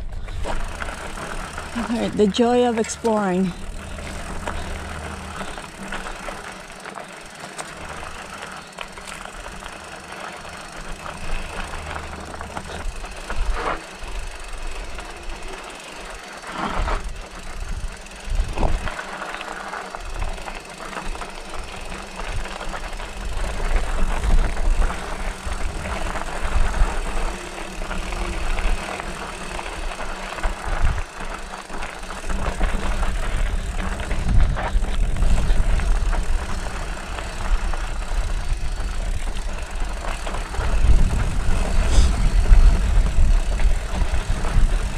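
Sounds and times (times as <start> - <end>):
bike chain and frame rattling: 0.0 - 44.9
bike tyres on dirt: 0.0 - 44.9
wind rumble on microphone: 16.7 - 19.0, 21.2 - 29.2, 29.8 - 44.9.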